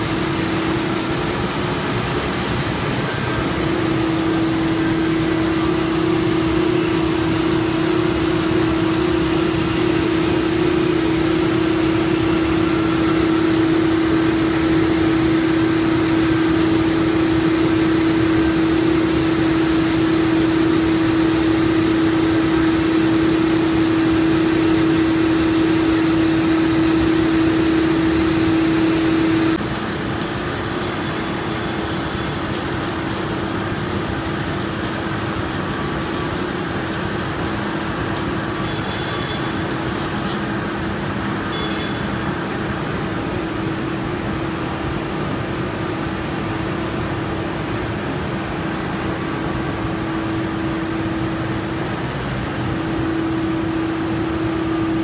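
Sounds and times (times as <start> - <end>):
machine humming with steady tone: 0.0 - 55.0.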